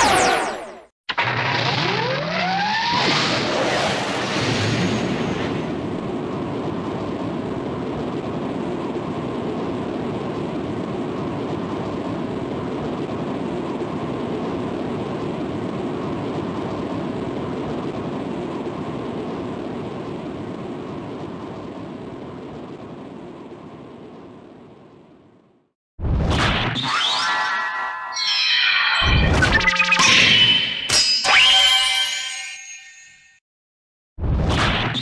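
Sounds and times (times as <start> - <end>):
cartoon noise burst: 0.0 - 4.2.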